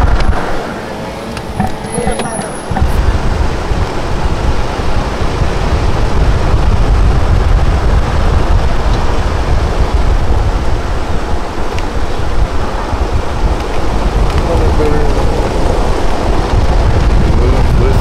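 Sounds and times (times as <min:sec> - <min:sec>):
road noise: 0:00.0 - 0:18.0
wind buffeting microphone: 0:00.0 - 0:18.0.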